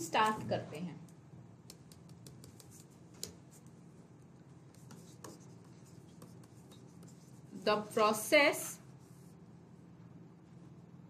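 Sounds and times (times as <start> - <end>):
low steady hum: 0.0 - 11.0
stylus tapping on pen tablet: 1.6 - 3.5.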